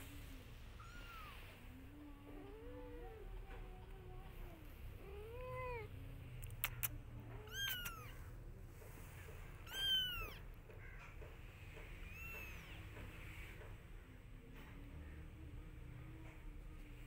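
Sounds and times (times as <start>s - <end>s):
cat meowing: 0.7s - 1.6s, 5.0s - 5.9s, 7.3s - 8.3s, 9.6s - 10.5s, 12.0s - 12.8s
kitten mewing: 5.0s - 8.3s, 9.6s - 10.5s.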